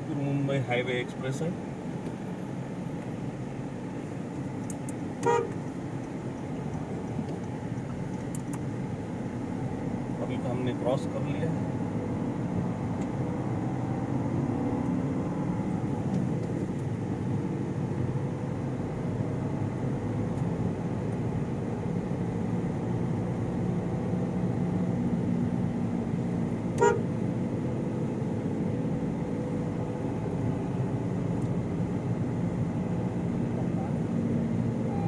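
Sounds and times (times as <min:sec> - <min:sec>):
car engine and road noise: 0:00.0 - 0:35.0
car horn toot: 0:05.2 - 0:05.6, 0:26.8 - 0:27.1.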